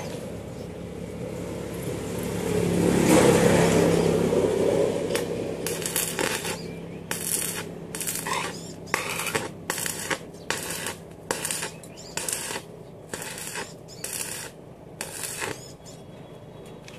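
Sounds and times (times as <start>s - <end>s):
welding arc crackling: 3.7s - 15.8s.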